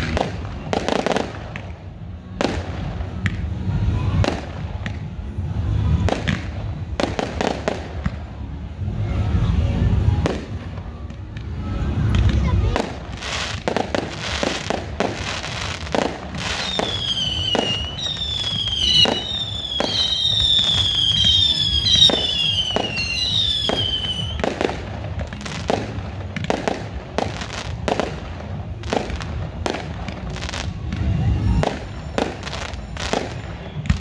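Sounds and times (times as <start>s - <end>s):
fireworks bangs and crackling: 0.0s - 34.0s.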